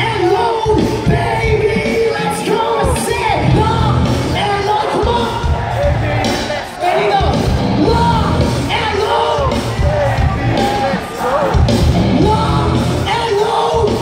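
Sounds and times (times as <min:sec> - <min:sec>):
crowd yelling: 0:00.0 - 0:14.0
loud drums and bass: 0:00.0 - 0:14.0
rock band playing live: 0:00.0 - 0:14.0
person singing: 0:06.3 - 0:14.0.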